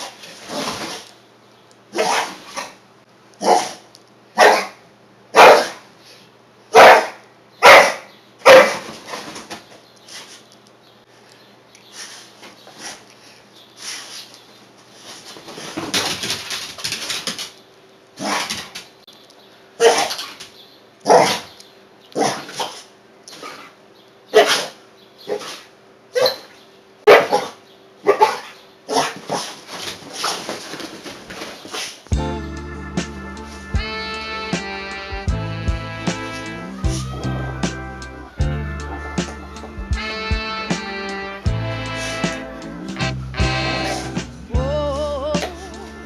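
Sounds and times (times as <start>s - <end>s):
dog barking: 1.9s - 2.7s, 3.4s - 3.8s, 4.4s - 5.9s, 6.7s - 8.9s, 19.8s - 20.2s, 21.0s - 21.5s, 24.3s - 25.6s, 26.2s - 26.5s, 27.1s - 29.5s.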